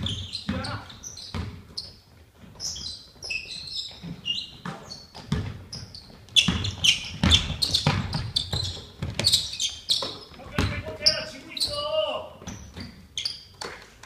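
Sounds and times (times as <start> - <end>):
basketball bouncing on wooden floor: 0.0 - 13.1
sneakers squeaking on court: 0.0 - 13.6.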